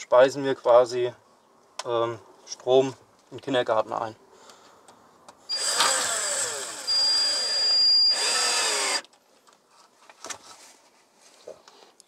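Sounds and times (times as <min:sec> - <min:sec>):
power tool whining: 0:05.5 - 0:09.1.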